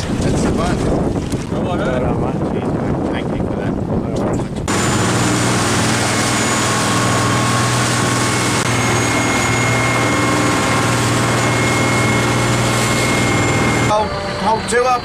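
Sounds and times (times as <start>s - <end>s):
boat engine droning: 4.7s - 15.0s
faint steady whine: 6.3s - 15.0s.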